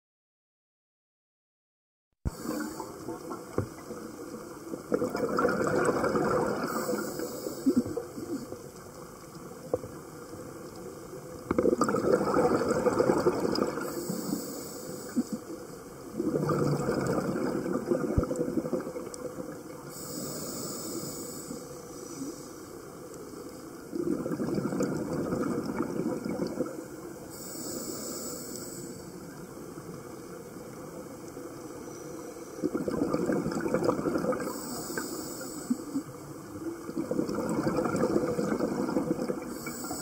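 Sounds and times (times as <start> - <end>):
exhaled bubbles underwater: 2.3 - 21.1, 22.9 - 28.1, 29.0 - 40.0
regulator high hiss: 13.9 - 15.4, 19.9 - 22.6, 27.3 - 29.2, 34.5 - 36.0.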